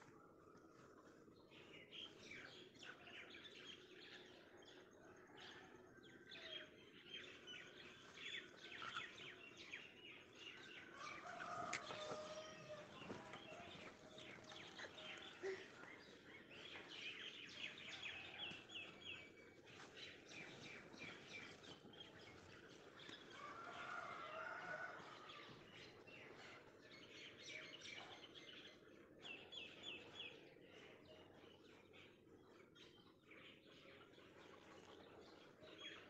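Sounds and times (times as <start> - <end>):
birds chirping: 8.3 - 25.0.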